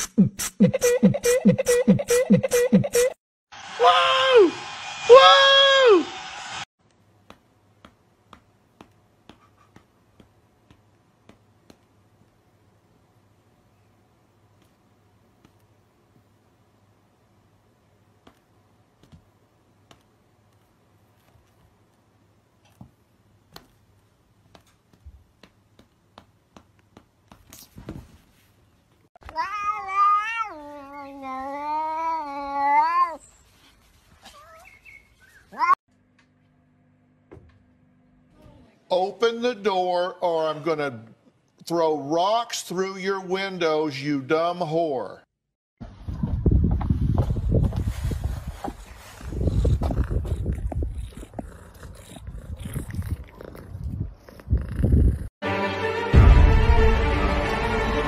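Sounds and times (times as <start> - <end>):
cat yowling: 29.3 - 33.2.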